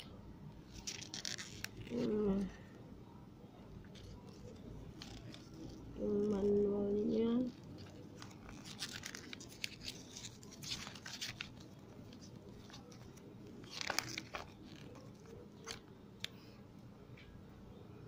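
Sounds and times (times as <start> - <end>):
paper pages rustling: 0.6 - 2.5, 3.8 - 16.4.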